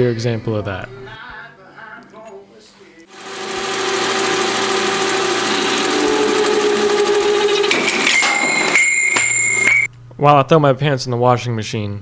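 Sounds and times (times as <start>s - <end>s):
metal lathe cutting: 3.1s - 9.9s
high ringing tone: 3.5s - 9.9s.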